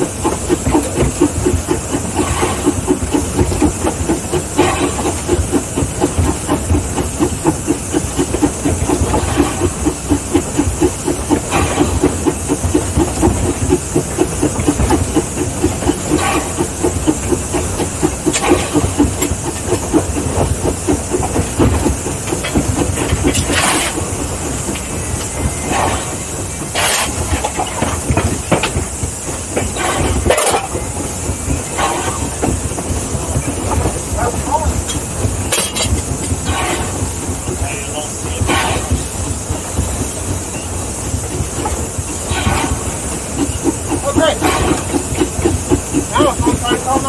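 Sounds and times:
fast engine beat: 0:00.0 - 0:47.0
steam hissing: 0:00.0 - 0:47.0
sharp metal clanks: 0:26.7 - 0:27.8, 0:29.8 - 0:31.0, 0:35.5 - 0:36.9.

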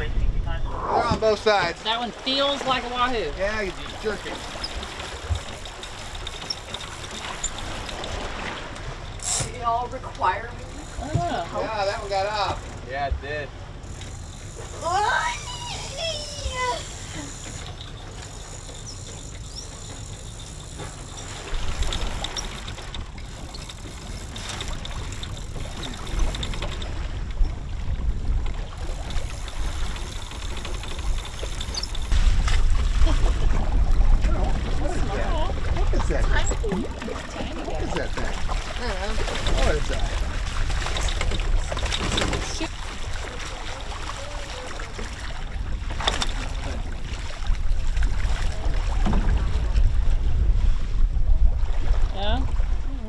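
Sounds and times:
wind rumbling on microphone: 0:00.0 - 0:01.8, 0:20.9 - 0:53.0
sea noise: 0:00.0 - 0:53.0
water rushing past boat hull: 0:00.0 - 0:53.0
fish thrashing and splashing: 0:28.4 - 0:49.6.

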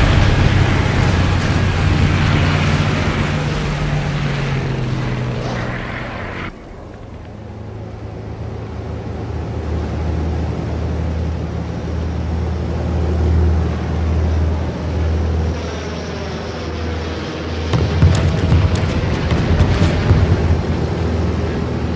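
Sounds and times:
propeller plane engine droning: 0:00.0 - 0:21.9.

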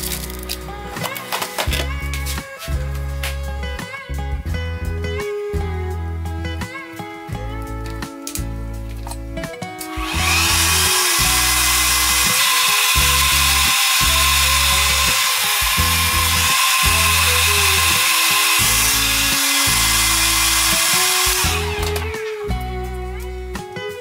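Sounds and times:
hair dryer blowing air: 0:09.9 - 0:22.3.

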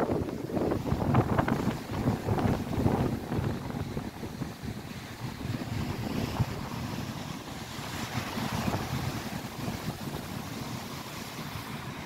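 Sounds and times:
lake waves breaking on shore: 0:00.0 - 0:12.0
wind buffeting microphone: 0:00.0 - 0:12.0.

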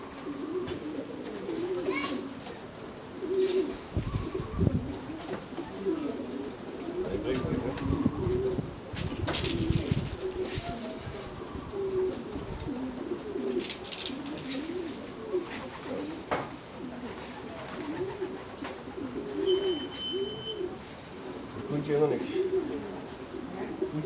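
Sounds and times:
pigeons cooing: 0:00.0 - 0:24.0
short high beep: 0:19.5 - 0:20.6.

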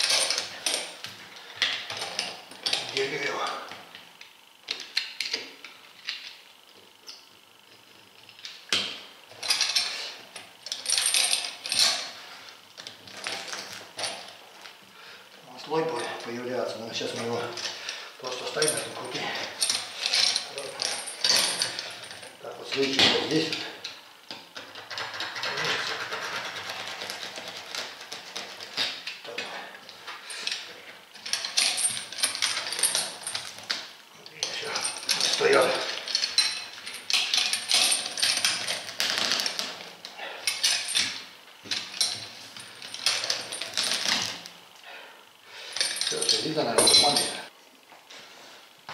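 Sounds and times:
metal clamps and chain clinking: 0:00.0 - 0:03.6, 0:08.8 - 0:12.2, 0:17.0 - 0:24.0, 0:24.6 - 0:44.5, 0:45.6 - 0:47.5.

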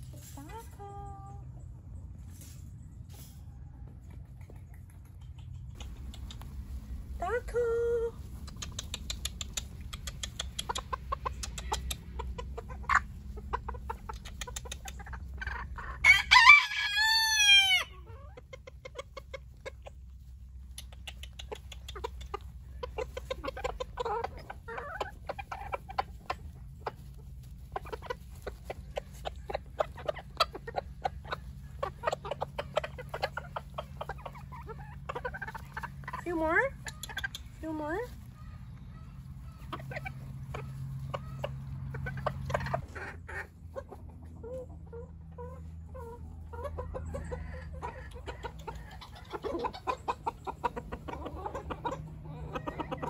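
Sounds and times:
chickens clucking: 0:00.0 - 0:53.0
quick clicks: 0:08.4 - 0:12.1
rooster crowing: 0:16.0 - 0:17.9.

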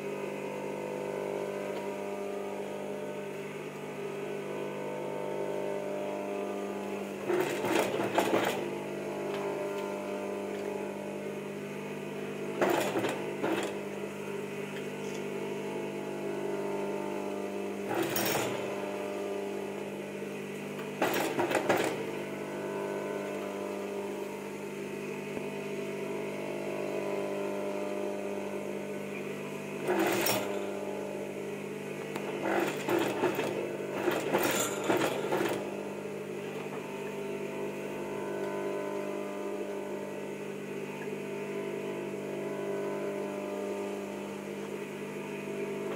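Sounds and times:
motor hum: 0:00.0 - 0:45.9
sewing machine stitching: 0:07.2 - 0:08.8, 0:12.6 - 0:13.8, 0:17.9 - 0:18.9, 0:21.0 - 0:22.1, 0:29.8 - 0:30.8, 0:32.3 - 0:35.7.

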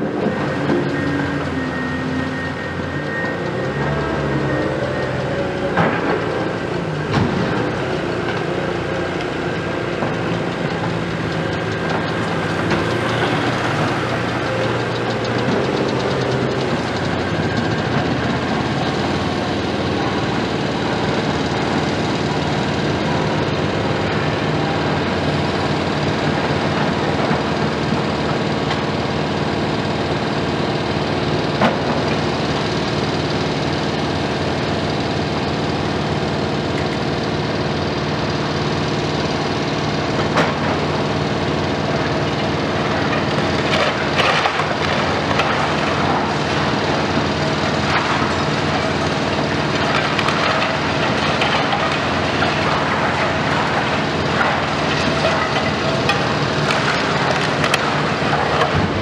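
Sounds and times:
heavy diesel machinery running: 0:00.0 - 0:59.0
crunching debris clattering: 0:35.2 - 0:59.0.

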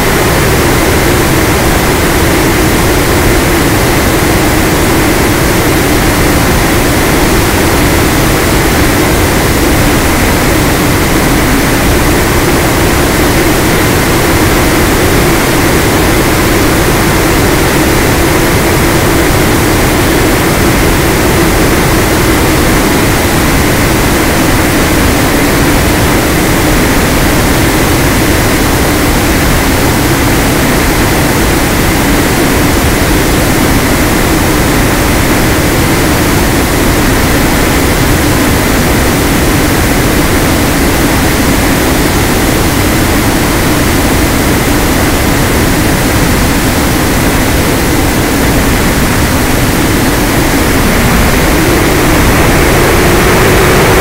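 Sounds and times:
loud wind rush: 0:00.0 - 0:54.0
electric motor and propeller drone: 0:48.6 - 0:54.0.

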